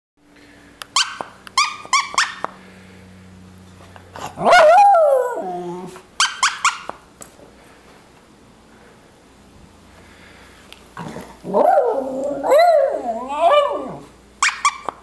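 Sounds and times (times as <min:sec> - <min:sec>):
dog yipping: 0:00.9 - 0:02.5, 0:04.3 - 0:07.0, 0:11.5 - 0:15.0
dog howling: 0:04.4 - 0:06.0, 0:11.0 - 0:14.1.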